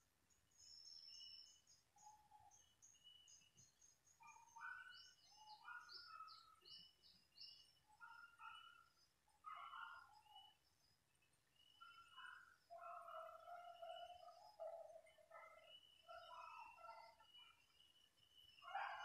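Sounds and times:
birds chirping: 11.5 - 19.0.

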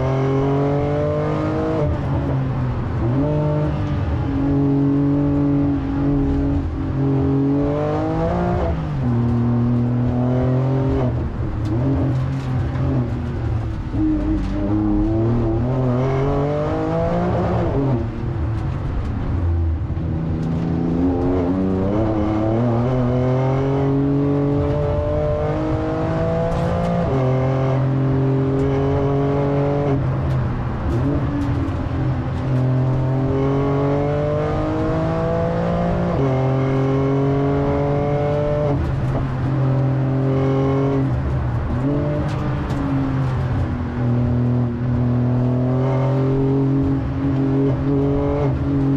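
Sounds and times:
car engine accelerating: 0.0 - 48.9.

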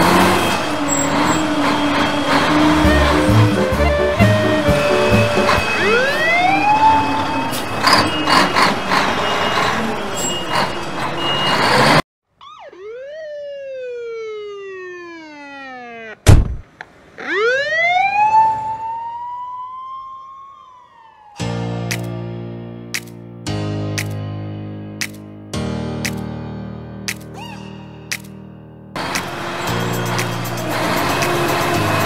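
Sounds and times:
police siren wailing: 0.0 - 16.3, 17.2 - 21.6
siren whoop: 0.2 - 7.9, 12.4 - 16.2, 17.2 - 21.5.

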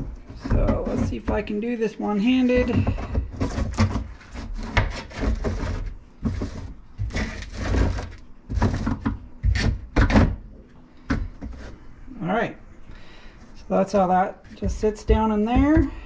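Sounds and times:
mesh sieve scraping plastic: 2.2 - 10.2.

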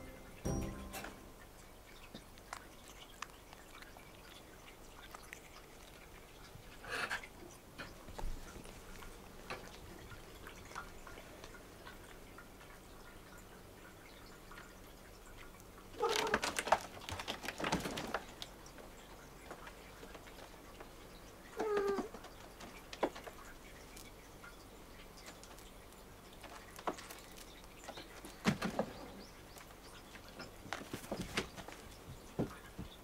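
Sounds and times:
wavering cat calls: 16.0 - 16.5, 21.5 - 22.1
cats climbing on furniture: 16.0 - 20.9, 21.6 - 23.5, 26.4 - 33.0.

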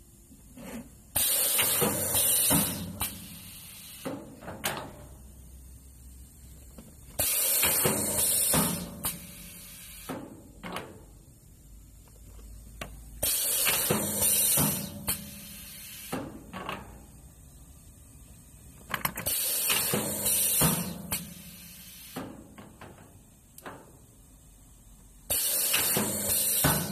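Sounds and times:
pneumatic cylinders clacking: 0.5 - 5.2, 6.7 - 11.2, 12.2 - 17.2, 18.7 - 24.1, 25.3 - 26.9
compressed air hissing: 1.1 - 4.4, 7.1 - 10.3, 13.2 - 16.5, 19.2 - 22.3, 25.3 - 26.9.

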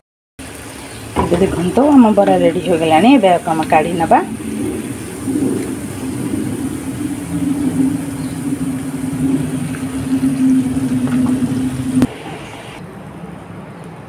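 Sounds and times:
hot oil sizzling: 0.4 - 12.8
steady low hum: 1.0 - 13.1.

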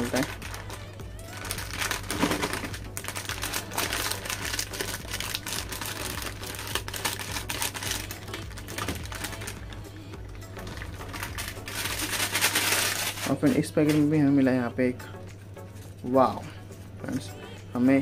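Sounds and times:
plastic packet crinkling: 0.0 - 9.8, 10.6 - 14.2.

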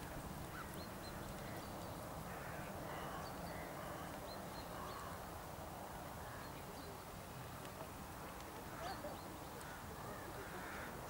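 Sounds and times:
faint bird calls: 0.0 - 5.3, 8.6 - 11.0
outdoor background noise: 0.0 - 11.0.

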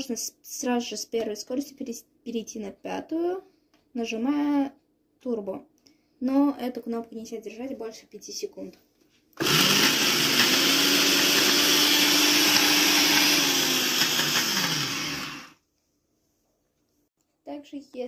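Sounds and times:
blender motor whirring: 9.4 - 15.6.

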